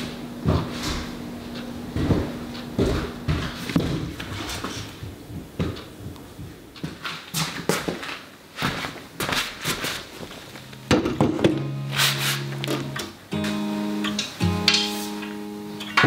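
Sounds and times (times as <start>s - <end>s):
footsteps: 0.0s - 13.7s
furniture bumping on floor: 1.9s - 7.0s, 10.9s - 11.7s
soft guitar tune: 10.4s - 16.0s.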